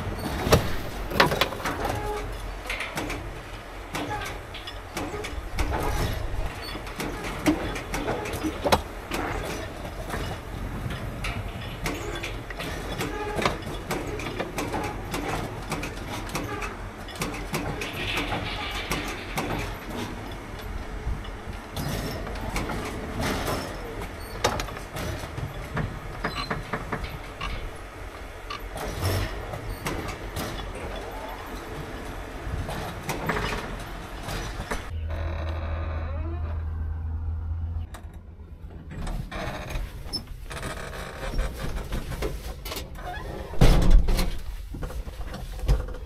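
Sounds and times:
truck body rattling and clunking: 0:00.0 - 0:35.0, 0:37.8 - 0:46.0
knocks and rattles: 0:00.3 - 0:03.4
diesel engine droning: 0:34.9 - 0:38.9.

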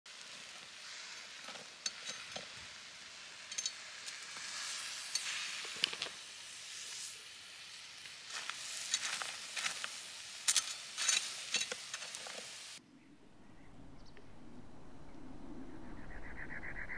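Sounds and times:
knife scraping through salt crust: 0:08.3 - 0:12.4.

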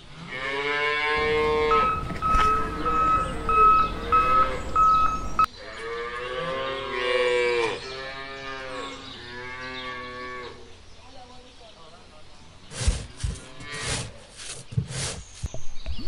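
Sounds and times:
cattle mooing: 0:00.3 - 0:05.0, 0:05.7 - 0:10.6
high beep: 0:01.7 - 0:05.5.

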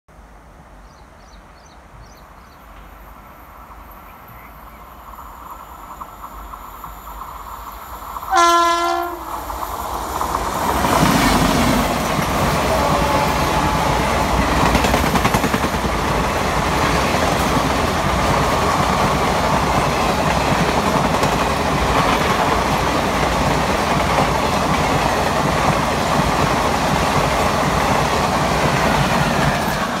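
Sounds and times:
train wheels rumbling on rails: 0:01.9 - 0:30.0
train horn blast: 0:08.3 - 0:09.4, 0:12.5 - 0:14.6.

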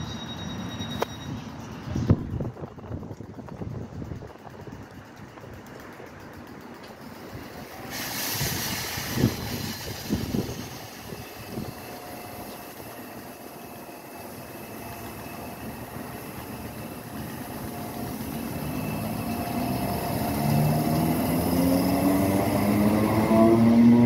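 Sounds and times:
train wheels rumbling on rails: 0:00.0 - 0:24.0
train motor whine: 0:06.3 - 0:24.0.

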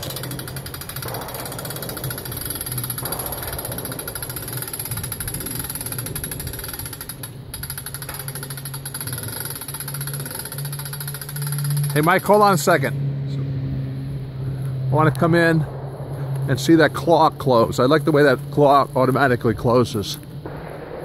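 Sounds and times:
hand-crank winch clicking: 0:00.0 - 0:12.5.

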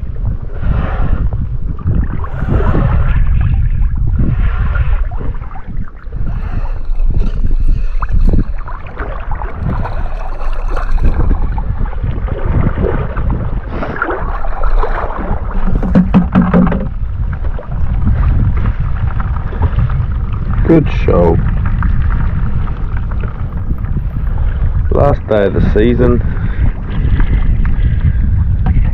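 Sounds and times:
wind buffeting microphone: 0:00.0 - 0:28.9
river water lapping: 0:01.8 - 0:25.0.

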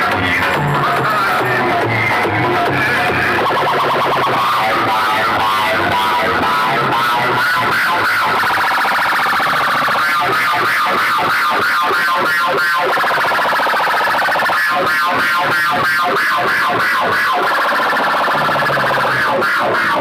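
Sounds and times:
loud music from horn loudspeakers: 0:00.0 - 0:08.7
warbling tone: 0:00.0 - 0:11.7
pulsing beat: 0:00.0 - 0:14.4.

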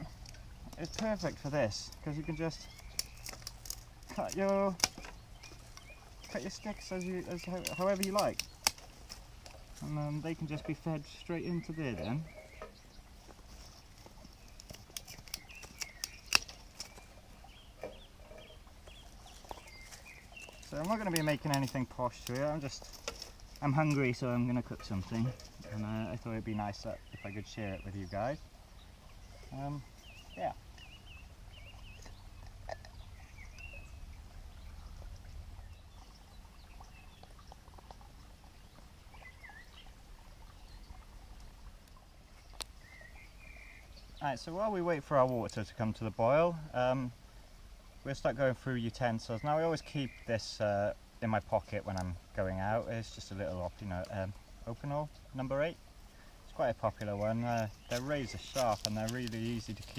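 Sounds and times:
twig fire crackling: 0:00.0 - 0:38.0, 0:51.2 - 0:59.9
birds chirping faintly: 0:00.0 - 0:59.9
kindling sticks snapping: 0:02.6 - 0:09.9, 0:14.0 - 0:17.0, 0:19.4 - 0:24.2
low steady rumble: 0:30.6 - 0:44.1.

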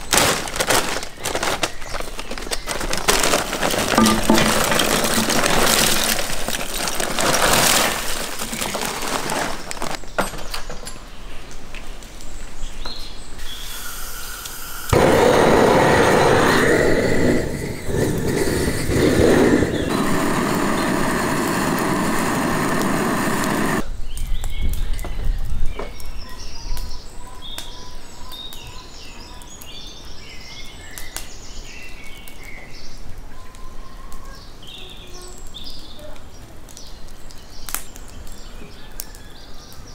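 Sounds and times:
birds chirping: 0:00.0 - 0:39.9
charcoal clattering into bowl: 0:00.1 - 0:11.0
gas torch hissing: 0:13.4 - 0:23.8.

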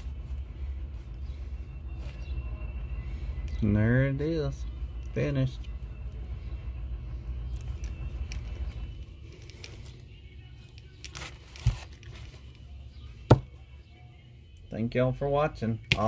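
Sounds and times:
low background hum: 0:00.0 - 0:16.0
handling noises: 0:07.1 - 0:13.6.

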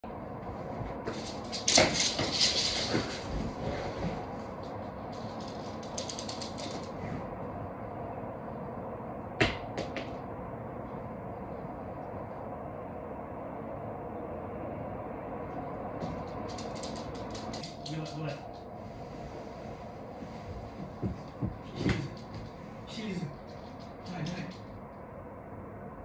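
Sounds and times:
background hum: 0:00.0 - 0:26.0
dog claws clicking on floor: 0:01.0 - 0:07.0, 0:16.0 - 0:18.6, 0:23.3 - 0:24.7.

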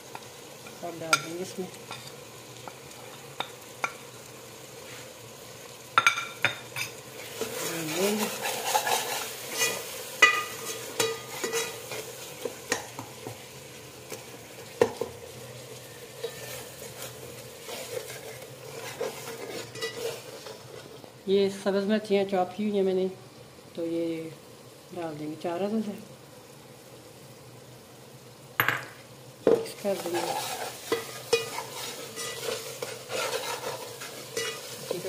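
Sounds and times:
spices sizzling in oil: 0:00.0 - 0:35.0
metal ladle scraping a pot: 0:08.1 - 0:12.1, 0:16.2 - 0:20.9, 0:30.0 - 0:34.8.

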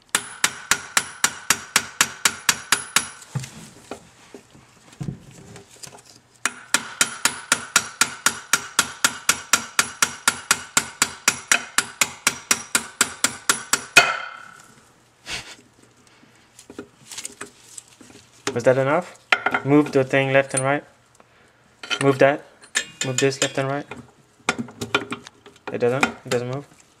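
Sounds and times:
hammer tapping metal pin: 0:21.8 - 0:23.6.

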